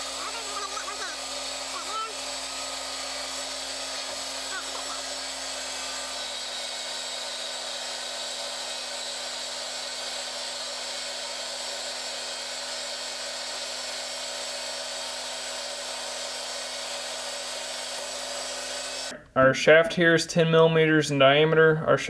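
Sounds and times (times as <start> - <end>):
machine hum: 0.0 - 15.8
metal lathe whine: 0.0 - 19.1.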